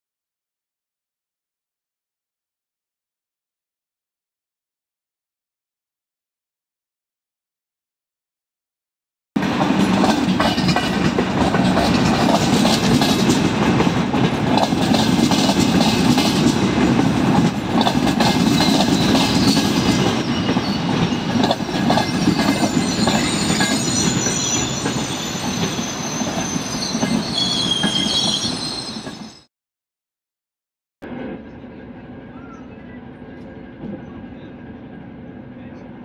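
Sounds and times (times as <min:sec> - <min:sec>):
wheels clacking over rail joints: 0:09.4 - 0:25.7
train rumbling: 0:09.4 - 0:29.5, 0:31.0 - 0:36.0
high brake squeals: 0:22.1 - 0:29.5.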